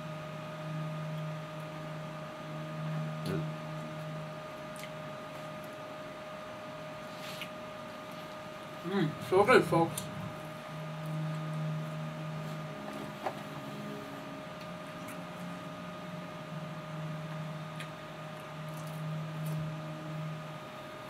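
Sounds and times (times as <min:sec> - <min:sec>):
faint electrical whine: 0:00.0 - 0:21.0
low hum: 0:00.0 - 0:21.0
person chewing: 0:04.7 - 0:05.0.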